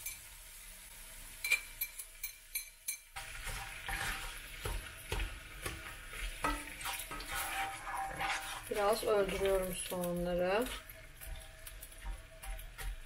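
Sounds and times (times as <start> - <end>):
onion sizzling in hot oil: 0.0 - 13.0
utensils clicking against pan: 1.4 - 13.0
spatula scraping pan: 3.2 - 13.0.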